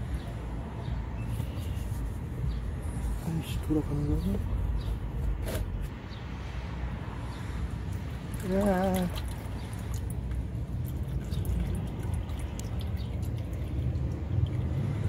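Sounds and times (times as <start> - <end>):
oil dripping into pan: 8.4 - 14.8.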